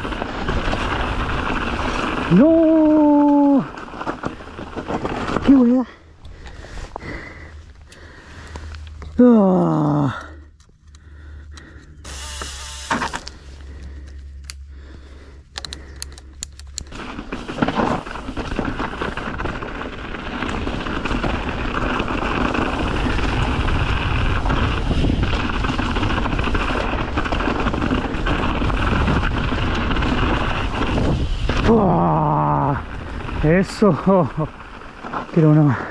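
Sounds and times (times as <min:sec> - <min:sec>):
mountain bike on dirt trail: 0:00.0 - 0:35.9
scattered clicks and rustles: 0:15.4 - 0:31.7.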